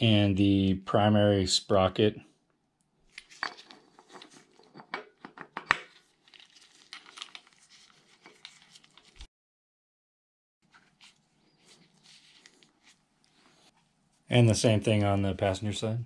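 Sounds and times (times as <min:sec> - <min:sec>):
glove rustling: 0:10.6 - 0:14.3.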